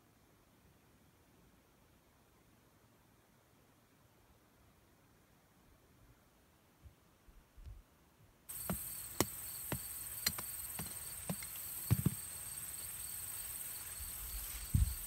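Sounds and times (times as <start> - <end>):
hammer tapping on soil: 8.5 - 12.7
insects droning: 8.5 - 15.0.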